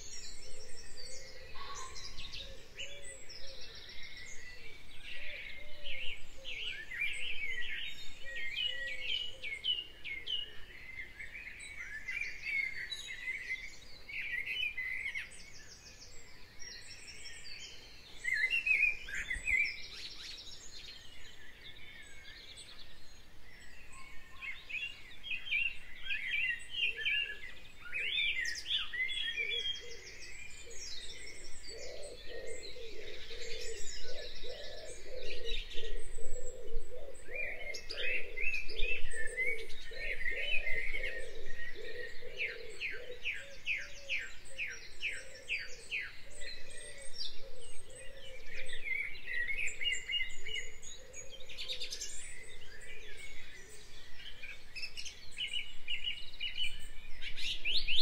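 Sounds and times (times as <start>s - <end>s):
songbirds chirping and warbling: 0.0s - 58.0s.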